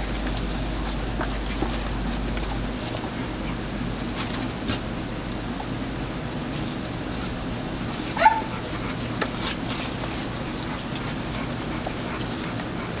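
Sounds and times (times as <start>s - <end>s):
paws scuffling on tile floor: 5.9s - 13.0s
dog yelping: 8.1s - 8.6s.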